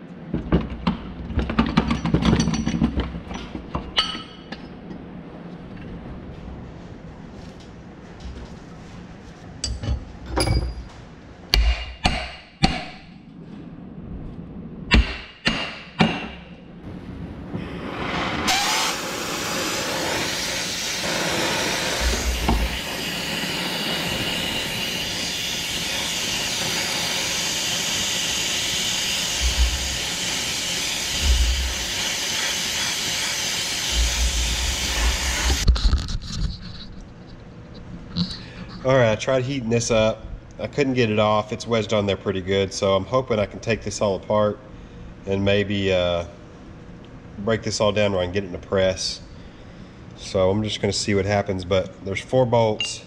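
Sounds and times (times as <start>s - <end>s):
sharp metal knocks and clicks: 11.5s - 13.0s
torch burning with loud hiss: 16.9s - 35.8s.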